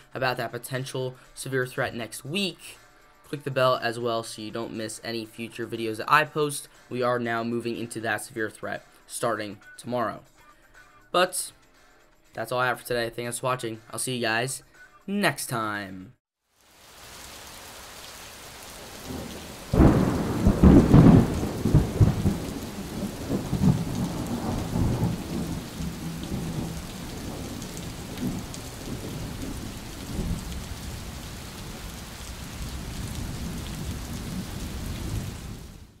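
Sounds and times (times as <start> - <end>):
steady rain: 16.5 - 36.0
thunderclap rumbling: 18.8 - 36.0.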